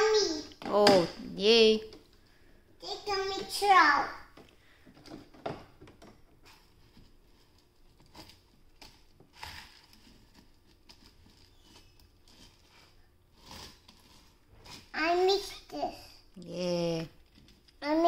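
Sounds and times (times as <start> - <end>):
plastic knocks: 4.4 - 6.3.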